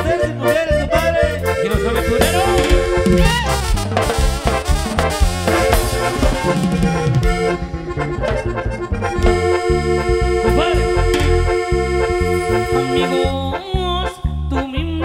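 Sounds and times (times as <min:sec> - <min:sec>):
drums: 0:00.0 - 0:12.6
accordion-like lead melody: 0:00.0 - 0:15.0
brass with tuba bass line: 0:00.0 - 0:15.0
live band playing: 0:00.0 - 0:15.0.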